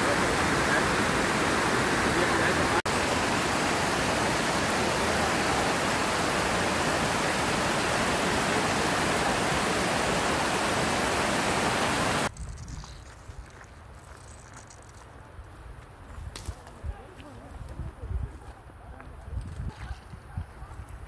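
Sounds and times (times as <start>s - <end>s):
waterfall rushing: 0.0s - 12.3s.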